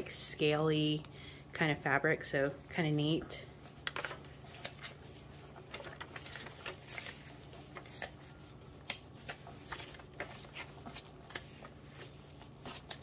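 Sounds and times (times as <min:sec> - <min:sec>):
paper pages turning: 0:03.6 - 0:13.0.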